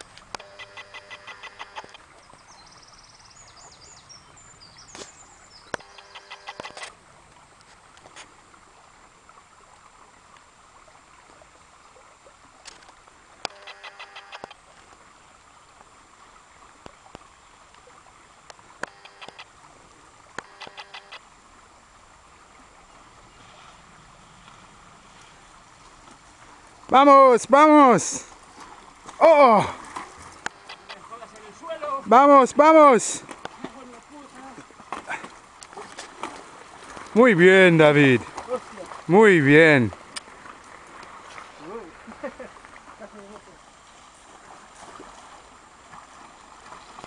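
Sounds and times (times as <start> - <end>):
creek water running over stones: 0.0 - 47.0
bird's rapid pulsed call: 5.0 - 6.8.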